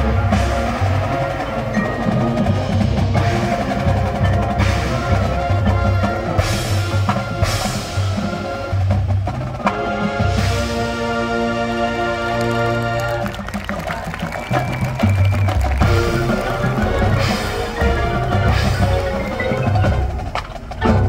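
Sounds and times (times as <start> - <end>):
sustained wind chords: 0.0 - 9.0, 9.6 - 21.0
mallet keyboards: 0.0 - 21.0
marching band drums: 0.0 - 21.0.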